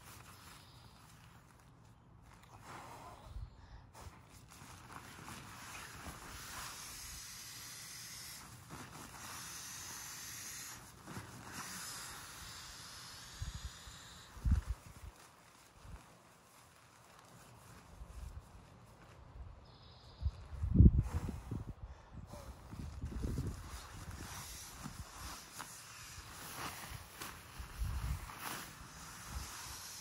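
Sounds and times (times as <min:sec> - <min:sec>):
air rushing through pump sack: 0:02.4 - 0:16.1, 0:20.6 - 0:30.0.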